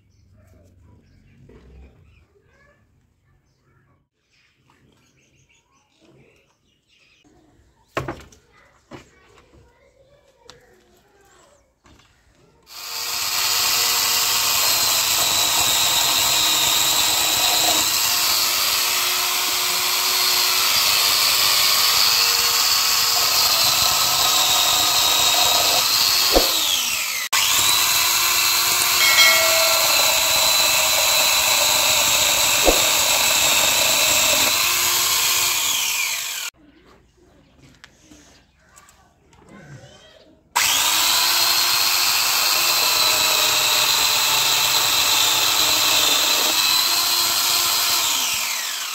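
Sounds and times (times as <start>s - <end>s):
chainsaw cutting wooden branches: 12.7s - 36.5s, 40.6s - 48.9s.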